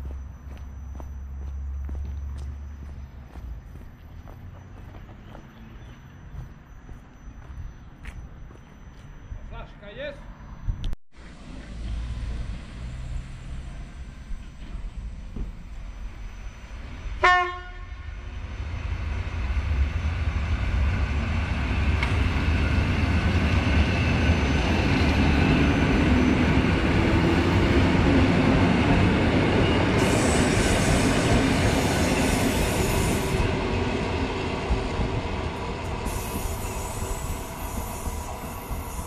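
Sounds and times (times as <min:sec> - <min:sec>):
train wheel and running noise: 0:13.7 - 0:39.0
train horn blast: 0:17.2 - 0:18.2
high hiss: 0:36.0 - 0:39.0.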